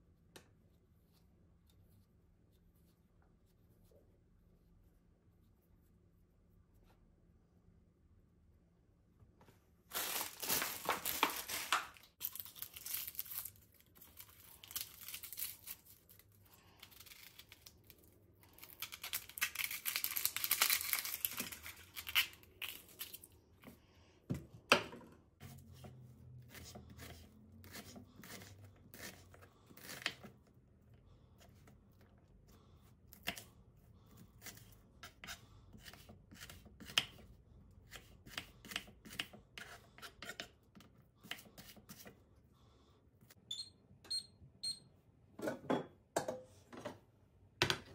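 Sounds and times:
crinkly rustling and tearing: 9.9s - 23.4s.

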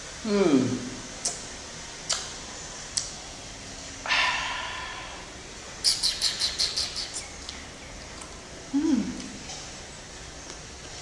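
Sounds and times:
mouth clicks: 1.2s - 1.4s, 2.1s - 2.3s, 5.8s - 7.6s.

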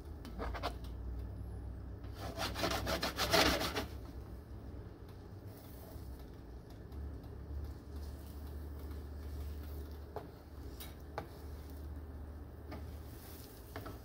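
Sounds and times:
spatula scraping a frying pan: 0.3s - 0.8s, 2.1s - 4.0s, 12.7s - 14.0s.

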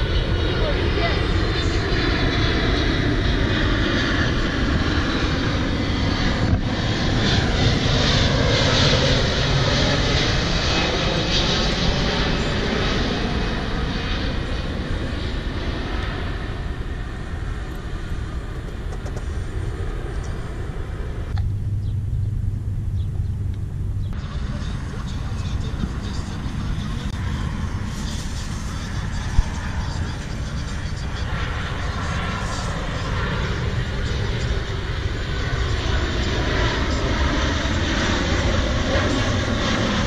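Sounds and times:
jet airliner flying overhead: 0.0s - 40.0s
dull low rumble: 14.4s - 36.0s.

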